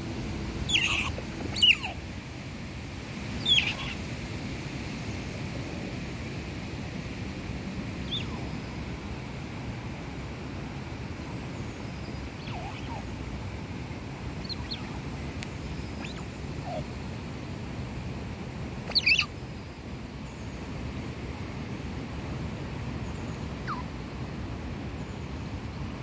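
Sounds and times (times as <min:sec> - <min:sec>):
birds chirping: 0:00.6 - 0:02.0, 0:03.4 - 0:04.1, 0:08.0 - 0:08.8, 0:11.5 - 0:13.5, 0:14.3 - 0:17.2, 0:18.7 - 0:20.6, 0:23.0 - 0:23.9.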